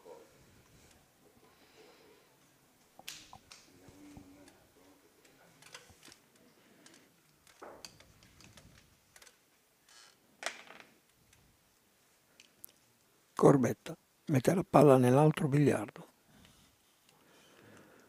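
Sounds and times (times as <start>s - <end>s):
faint clicks and knocks: 2.8s - 11.5s.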